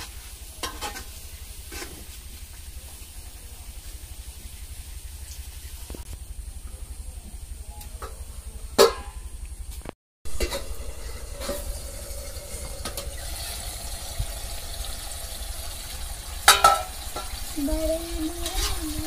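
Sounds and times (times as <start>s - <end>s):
curry sizzling in a pan: 0.0s - 5.8s, 10.3s - 19.0s
steady low hum: 1.2s - 16.5s
loud metal clank: 16.4s - 17.4s.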